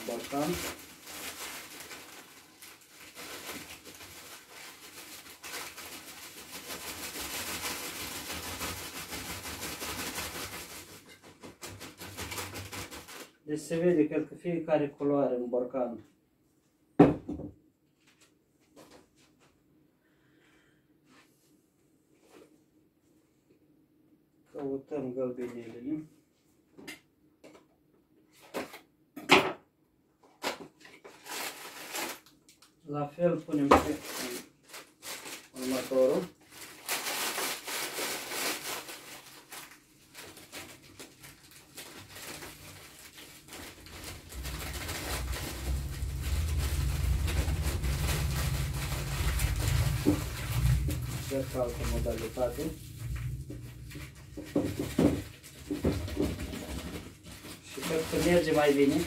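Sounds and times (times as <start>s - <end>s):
dried herbs rustling into bottle: 0.0s - 13.1s, 33.8s - 59.0s
paper packet crinkling: 0.0s - 13.4s, 30.3s - 32.8s, 33.5s - 59.0s.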